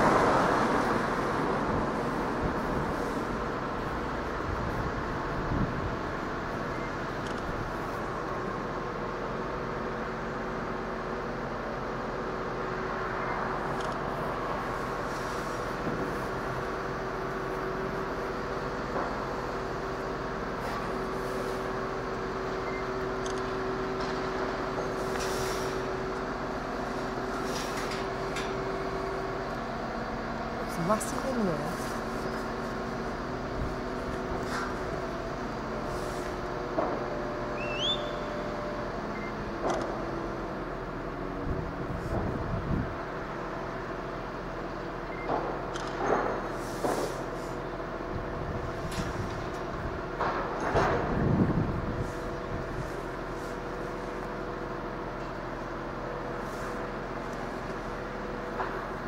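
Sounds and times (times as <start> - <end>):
crane engine running under load: 0.0 - 59.0
rising whistle: 37.5 - 38.4.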